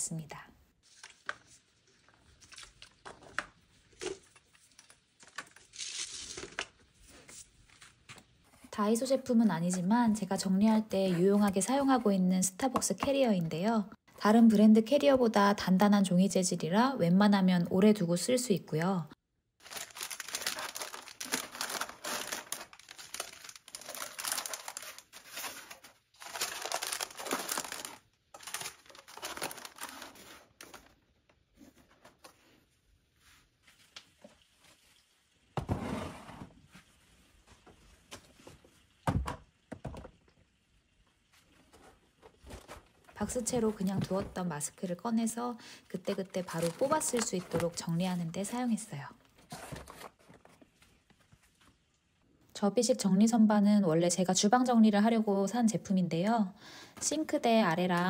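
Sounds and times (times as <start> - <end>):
packets crinkling and rustling: 19.6 - 31.0, 46.0 - 48.1
plastic bottles clattering: 19.7 - 31.0.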